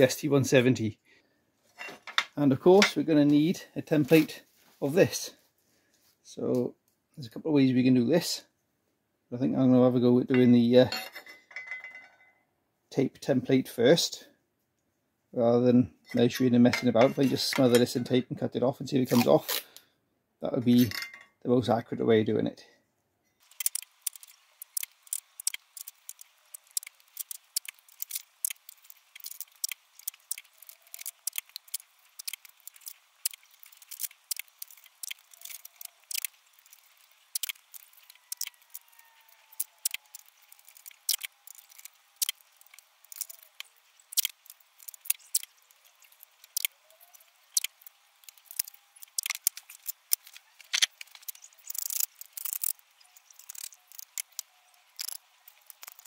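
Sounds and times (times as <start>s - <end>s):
masking tape tearing and crackling: 23.4s - 56.0s.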